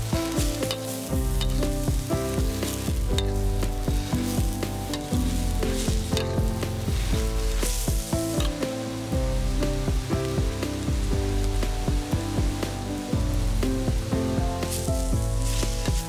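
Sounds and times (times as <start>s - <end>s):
spatula scraping wok: 0.0s - 9.8s, 14.6s - 16.0s
food sizzling in hot oil: 0.0s - 16.0s.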